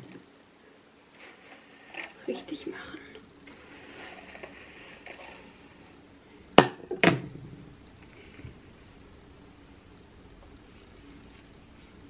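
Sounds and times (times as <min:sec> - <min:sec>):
hairbrush rustling through hair: 0:01.1 - 0:06.0.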